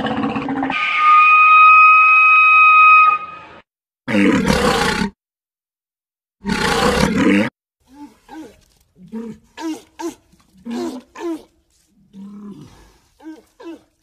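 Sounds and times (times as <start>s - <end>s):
walrus whistle: 0.7s - 3.5s
walrus grunt: 6.7s - 14.0s.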